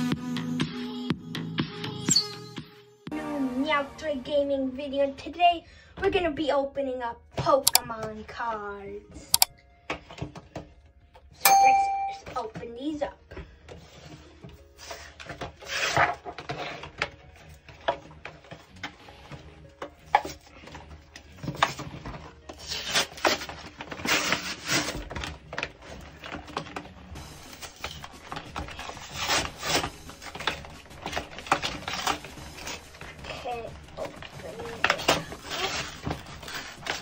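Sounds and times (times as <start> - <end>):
packaging being torn open: 22.6 - 26.9, 33.9 - 37.0.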